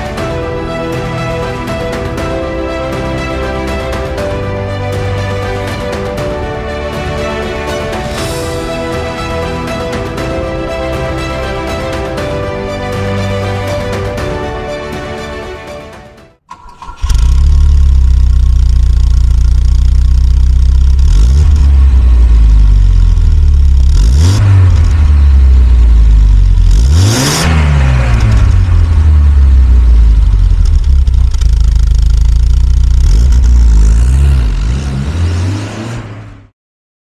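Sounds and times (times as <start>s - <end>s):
car engine idling and revving: 16.5s - 36.5s.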